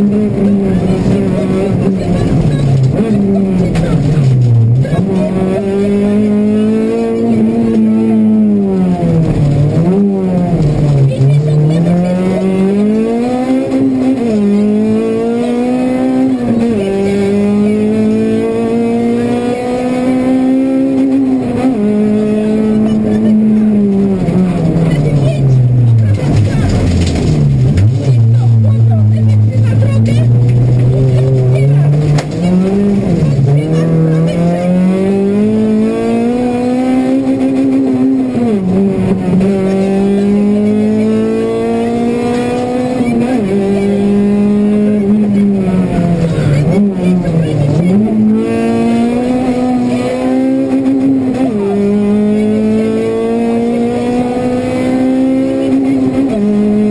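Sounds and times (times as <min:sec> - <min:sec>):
car engine at high revs: 0:00.0 - 0:56.9.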